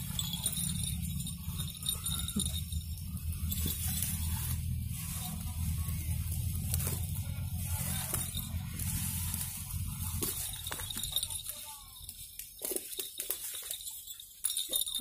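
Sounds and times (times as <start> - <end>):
low rumble: 0.0 - 12.4
leaves and grass rustling: 0.0 - 15.0.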